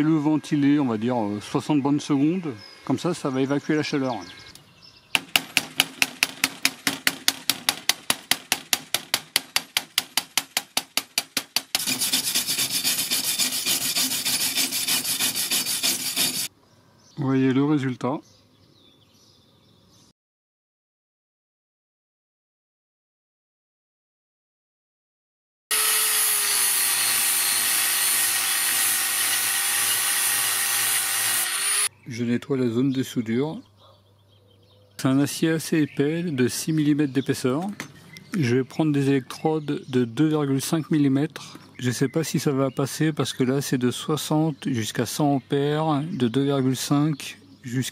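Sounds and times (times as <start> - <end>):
chipping hammer tapping metal: 5.2 - 12.2
wire brush scrubbing metal: 11.4 - 16.5, 25.7 - 31.9
angle grinder grinding steel: 11.8 - 16.5, 25.7 - 31.9.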